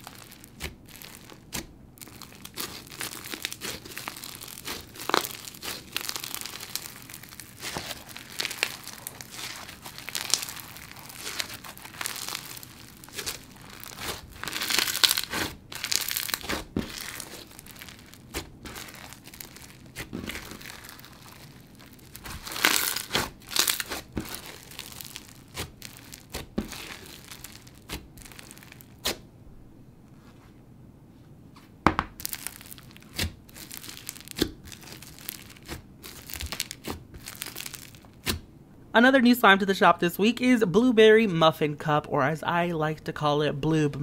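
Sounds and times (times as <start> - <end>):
crunchy slime crackling: 0.0 - 29.3, 32.0 - 38.5
slime snapping: 32.2 - 38.4.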